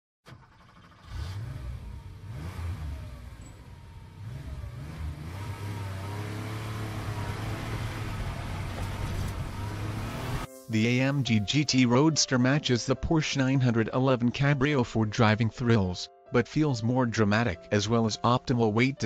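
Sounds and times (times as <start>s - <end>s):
car engine revving: 0.3s - 10.5s.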